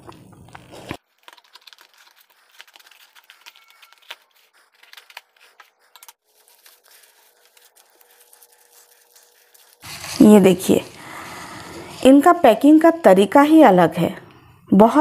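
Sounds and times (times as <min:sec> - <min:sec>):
cardboard parcel torn open: 0:00.7 - 0:05.4, 0:06.2 - 0:12.0.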